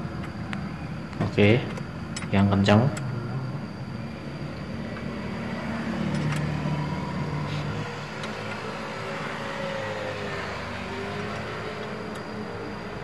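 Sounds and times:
vehicle engine humming: 0:00.0 - 0:13.0
spanner metallic clicks: 0:01.7 - 0:03.1, 0:06.0 - 0:06.6, 0:11.3 - 0:12.4.

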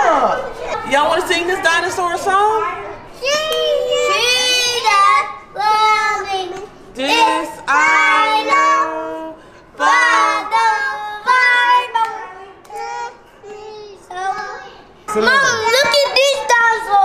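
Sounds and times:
children singing: 0:03.2 - 0:14.8.

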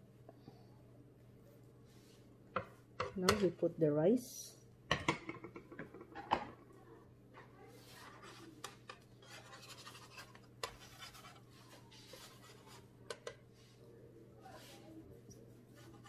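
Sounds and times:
utensil scraping griddle: 0:07.8 - 0:12.9.

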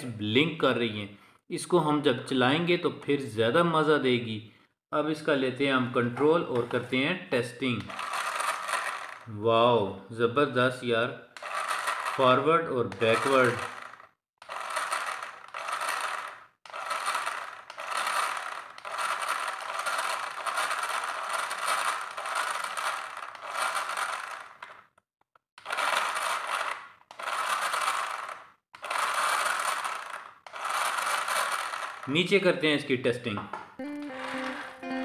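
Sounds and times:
toy car motor whirring: 0:07.9 - 0:09.3, 0:11.3 - 0:25.0, 0:25.6 - 0:32.2, 0:33.8 - 0:35.0.

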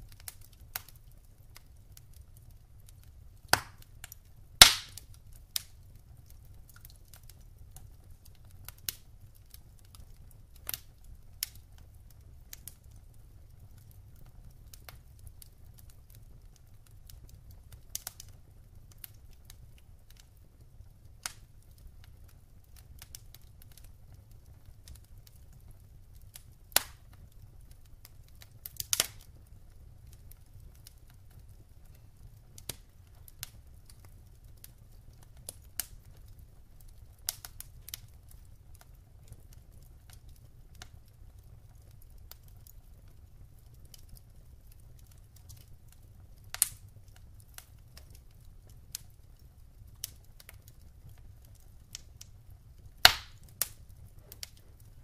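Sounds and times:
logs crackling in a fireplace: 0:00.0 - 0:55.0
sharp pops of fire: 0:03.0 - 0:16.3, 0:17.1 - 0:41.0, 0:46.4 - 0:49.1, 0:52.9 - 0:54.9.

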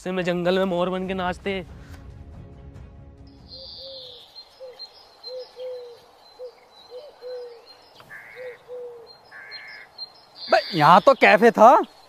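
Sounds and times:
high bird chirps: 0:03.4 - 0:12.0
dove cooing: 0:03.6 - 0:09.9
crow cawing: 0:03.6 - 0:10.9.

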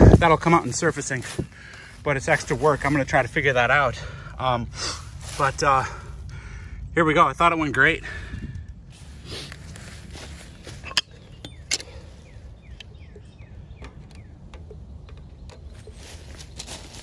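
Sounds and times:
low outdoor rumble: 0:00.0 - 0:17.0
oil can pump clicks: 0:12.7 - 0:15.9.

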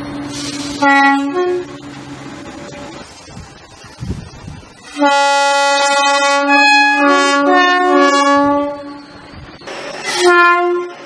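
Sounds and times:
two-tone train horn: 0:00.6 - 0:01.8, 0:04.9 - 0:09.2, 0:10.0 - 0:11.0.

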